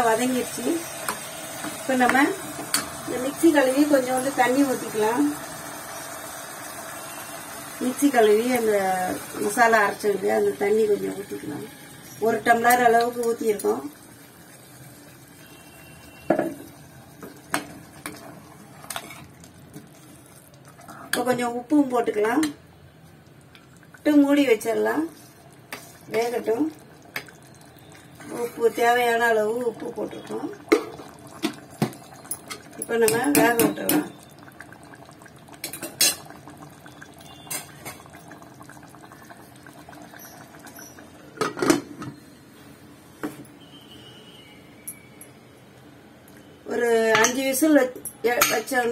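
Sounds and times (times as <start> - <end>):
curry sloshing in pot: 16.6 - 21.5
metal ladle knocking on pot: 33.0 - 34.1.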